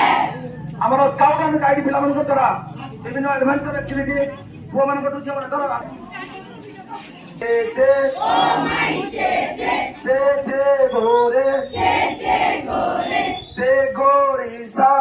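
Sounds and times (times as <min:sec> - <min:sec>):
crowd of students chanting: 0:00.0 - 0:00.4, 0:08.1 - 0:10.0, 0:11.5 - 0:13.4.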